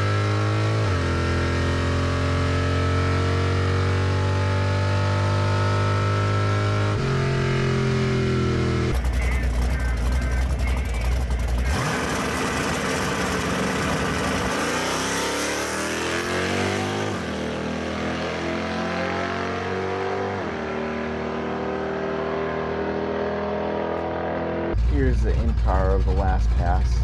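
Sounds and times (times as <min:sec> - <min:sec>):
drag car engine accelerating: 0:00.0 - 0:27.0
engine on rev limiter: 0:00.0 - 0:27.0.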